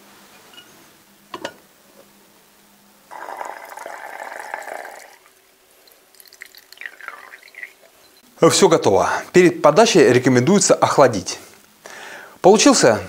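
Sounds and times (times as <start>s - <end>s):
liquid pouring and splashing: 3.1s - 8.1s
faint drips: 3.1s - 8.2s.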